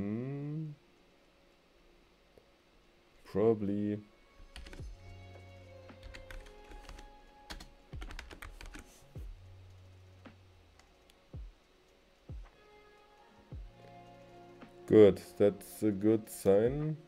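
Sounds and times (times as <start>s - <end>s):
quiet background music: 0.0s - 17.0s
keyboard typing clicks: 4.5s - 4.8s, 6.0s - 8.9s.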